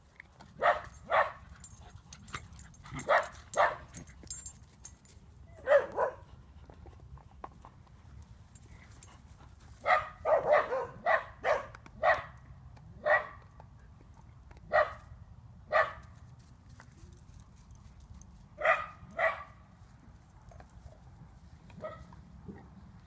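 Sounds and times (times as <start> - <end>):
puppy barking: 0.6 - 1.4, 2.9 - 3.9, 5.6 - 6.2, 9.8 - 12.4, 13.0 - 13.4, 14.7 - 15.0, 15.7 - 16.0, 18.6 - 19.5.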